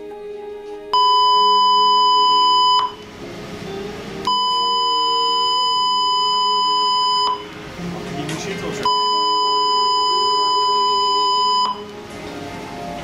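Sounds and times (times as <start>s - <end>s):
long electronic beeps: 1.0s - 3.1s, 4.2s - 7.5s, 8.8s - 11.9s.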